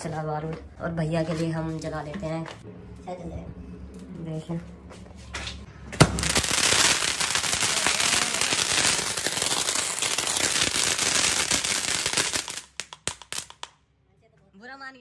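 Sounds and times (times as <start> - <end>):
firework fountain hissing and crackling: 6.1 - 13.7.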